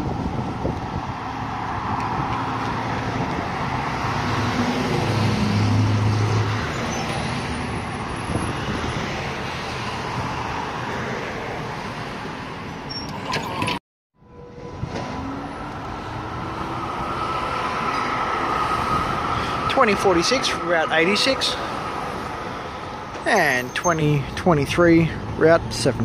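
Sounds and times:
tram motors humming: 0:12.7 - 0:23.3.

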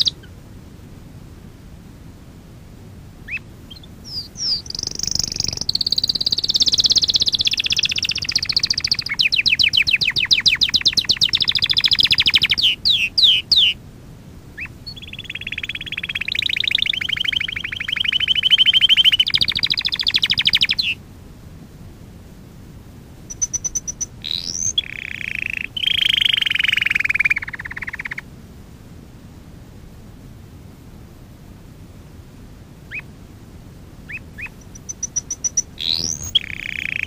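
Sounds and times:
canary singing trills: 0:00.0 - 0:00.4, 0:03.2 - 0:13.8, 0:14.6 - 0:21.0, 0:23.2 - 0:28.2, 0:32.8 - 0:33.1, 0:34.0 - 0:37.0.

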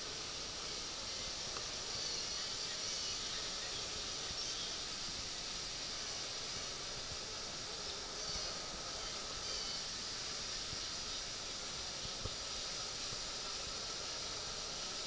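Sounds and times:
high-pitched garden hiss: 0:00.0 - 0:15.0.

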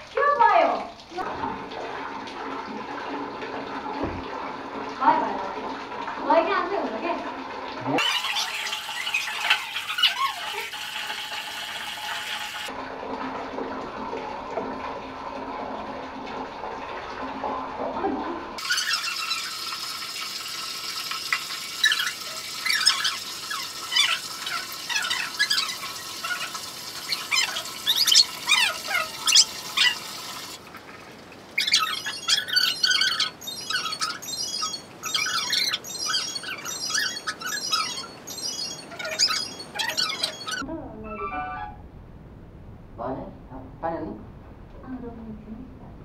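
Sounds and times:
water running from a tap: 0:00.0 - 0:40.6
puppy whimpering and yelping: 0:21.8 - 0:30.1, 0:31.6 - 0:41.5.

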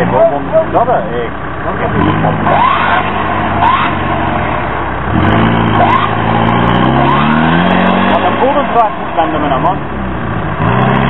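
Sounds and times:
engine revving under load: 0:00.0 - 0:11.0
short rising squeaks: 0:02.4 - 0:04.8, 0:05.4 - 0:08.1.

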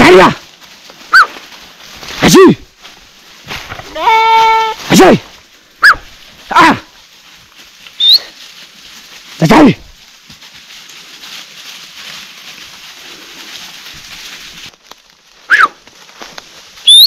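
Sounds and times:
dog yelping: 0:01.1 - 0:01.4, 0:05.8 - 0:06.8, 0:08.0 - 0:08.3, 0:15.5 - 0:15.8
rising bird chirp: 0:08.0 - 0:08.3.

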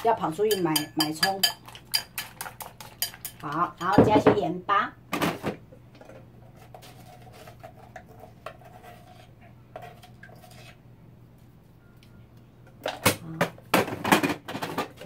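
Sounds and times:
utensil clinking porcelain bowl: 0:00.0 - 0:04.4.

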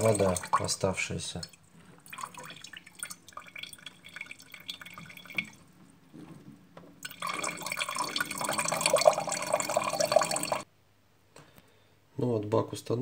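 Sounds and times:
water dripping into a glass jar: 0:00.0 - 0:05.7, 0:07.0 - 0:10.6
water trickling: 0:00.0 - 0:05.9, 0:07.0 - 0:10.7.

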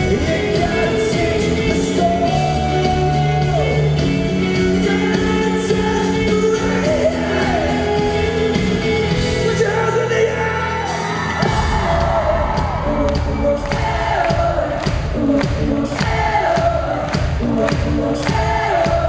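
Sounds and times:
acoustic guitar: 0:00.0 - 0:10.4
live pop-rock band playing: 0:00.0 - 0:19.0
man singing: 0:00.0 - 0:19.0.

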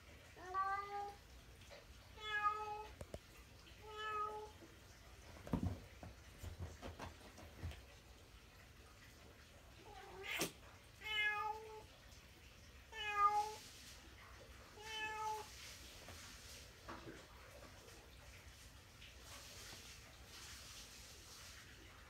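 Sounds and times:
cat meowing: 0:09.9 - 0:11.8, 0:12.9 - 0:13.6, 0:14.8 - 0:15.5.

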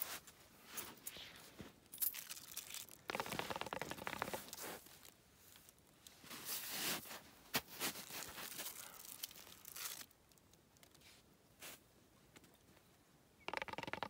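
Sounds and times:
scraping and rustling of hose: 0:00.0 - 0:10.1.

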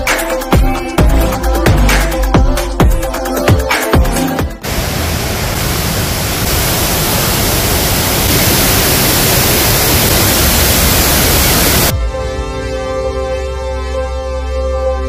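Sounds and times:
electronic music: 0:00.0 - 0:04.6
waterfall rushing: 0:04.6 - 0:11.9.

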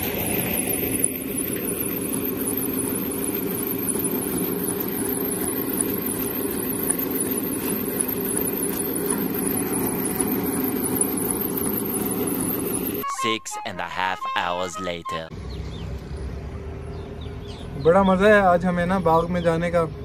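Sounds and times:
water pump running: 0:00.0 - 0:13.0.

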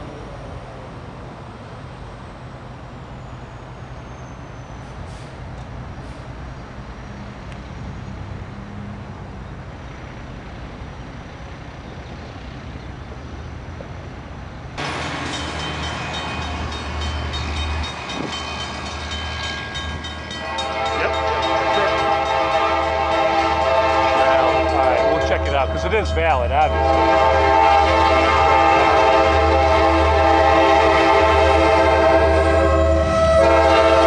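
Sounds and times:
locomotive engine rumble: 0:00.0 - 0:34.0
train horn sounding: 0:20.3 - 0:34.0.

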